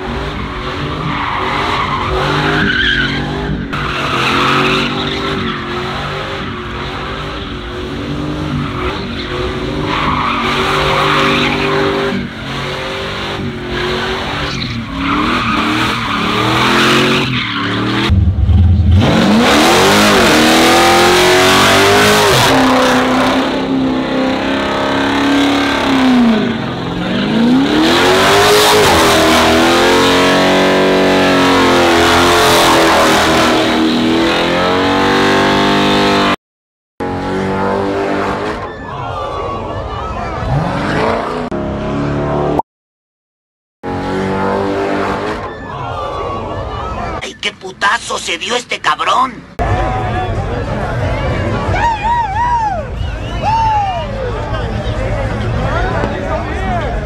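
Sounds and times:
tires squealing on pavement: 0.0 - 36.3, 44.0 - 47.3, 49.6 - 56.9
truck engine revving: 0.0 - 36.4, 40.3 - 42.6.

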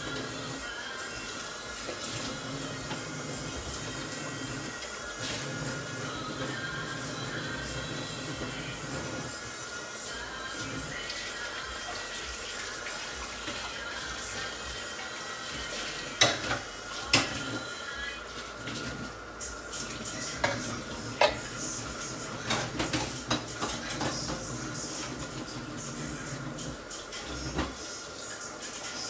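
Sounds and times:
cookware clinking and knocking: 16.2 - 17.4.

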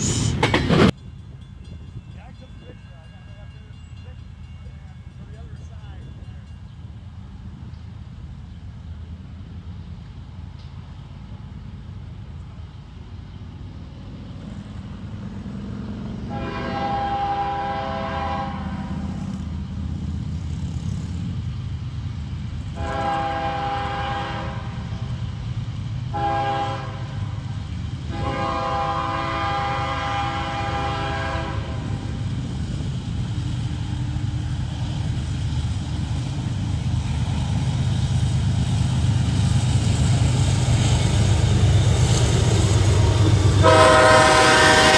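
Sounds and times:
low rumble of locomotives: 0.0 - 44.9
diesel locomotive horn blasts: 16.2 - 19.2, 22.7 - 25.1, 26.1 - 32.1, 42.9 - 44.9.

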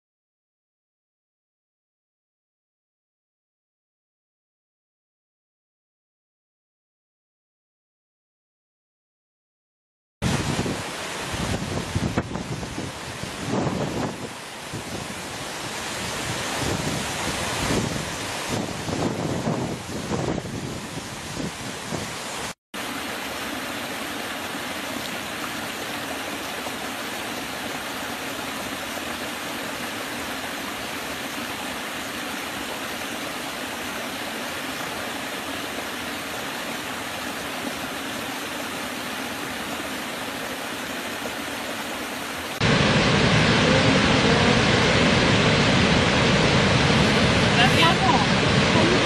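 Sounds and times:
stream over rocks: 10.2 - 49.0
waterfall rushing: 10.2 - 49.0.

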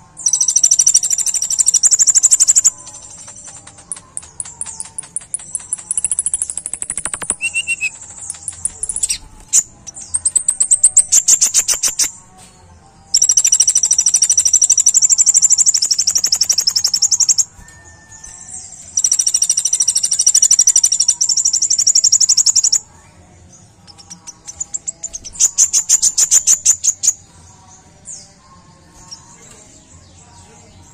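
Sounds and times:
bird singing high-pitched trills: 0.0 - 12.3, 13.0 - 23.0, 23.8 - 30.9.

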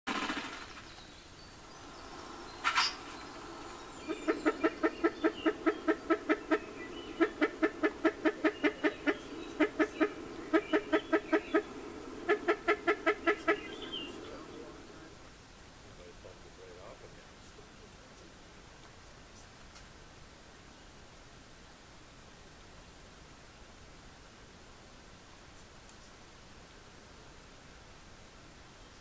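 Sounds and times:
grouse clucking: 2.6 - 15.3.

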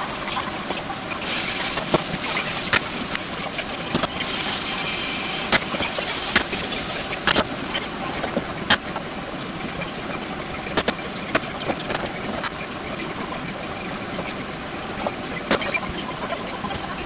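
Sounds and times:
food sizzling in a wok: 0.0 - 8.0.

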